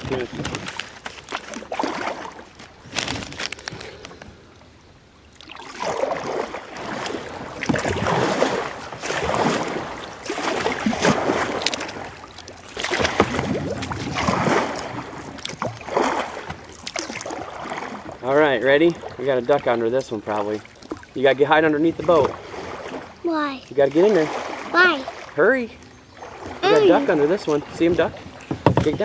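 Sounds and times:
paddle strokes splashing water: 0.0s - 4.3s, 5.2s - 29.0s.

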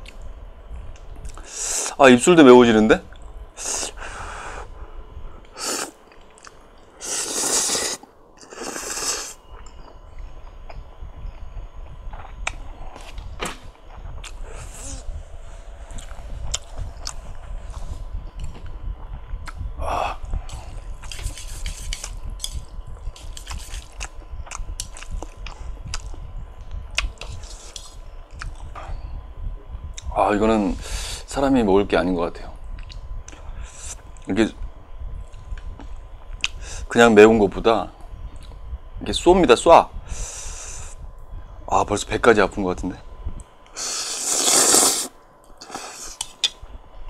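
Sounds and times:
man slurping noodles: 5.6s - 5.9s, 7.0s - 9.4s, 43.8s - 46.2s
short hisses: 7.0s - 9.4s, 43.8s - 46.2s.

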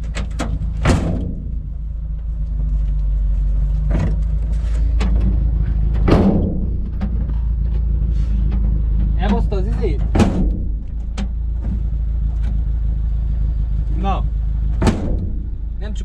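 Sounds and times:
car engine running: 0.0s - 16.0s
sharp knocks: 0.4s - 2.0s, 6.0s - 7.5s, 8.5s - 11.8s, 14.7s - 16.0s.

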